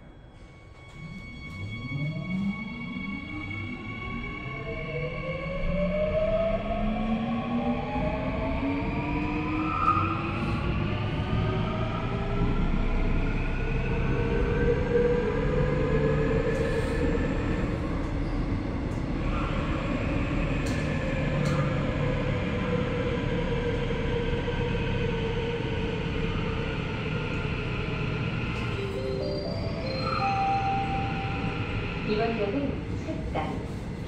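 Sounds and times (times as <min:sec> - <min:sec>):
wheels rumbling on rail: 0:00.0 - 0:34.0.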